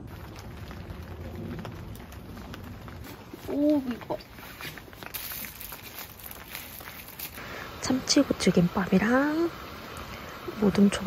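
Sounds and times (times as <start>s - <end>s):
plastic bag rustling: 0.0s - 7.6s
steady hiss: 0.0s - 11.0s.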